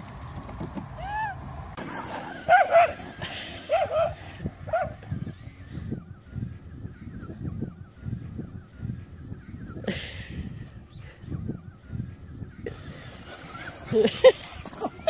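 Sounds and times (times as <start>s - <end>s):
faint small engine: 0.0s - 9.4s, 11.6s - 15.0s
dog yipping: 2.3s - 5.0s.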